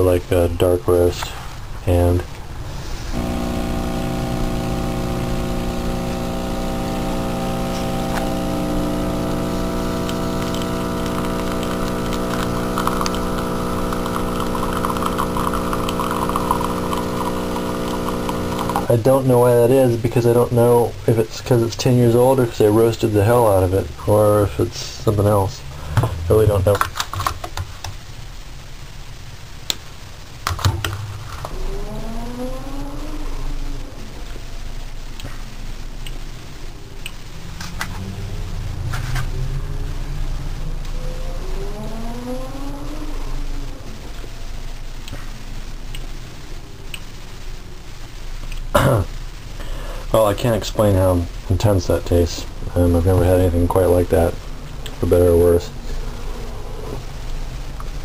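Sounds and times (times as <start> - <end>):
coffee grinder motor hum: 3.1 - 18.9.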